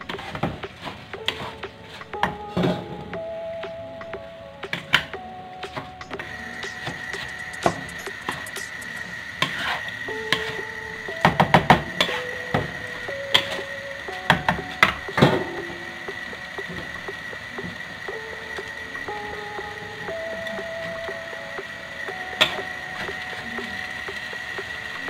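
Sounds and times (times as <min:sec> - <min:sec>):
soft background music: 0:00.0 - 0:25.0.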